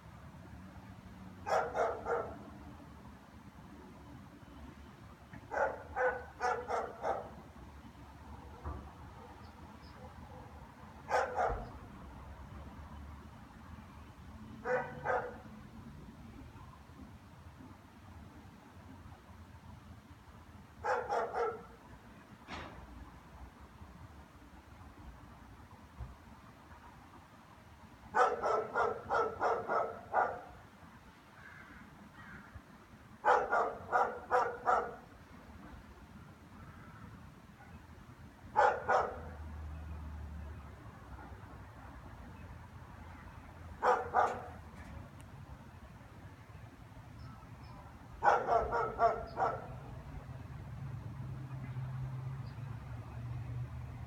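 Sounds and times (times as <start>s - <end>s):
dog barking: 1.4s - 2.4s, 5.5s - 7.4s, 11.1s - 11.8s, 14.6s - 15.4s, 20.8s - 21.8s, 28.2s - 30.6s, 33.2s - 35.0s, 38.6s - 39.4s, 43.8s - 44.6s, 48.2s - 49.8s.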